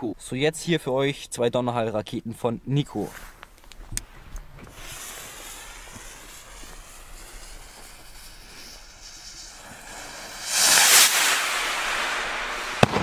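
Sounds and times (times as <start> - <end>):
fuse burning with hiss: 3.2 - 13.0.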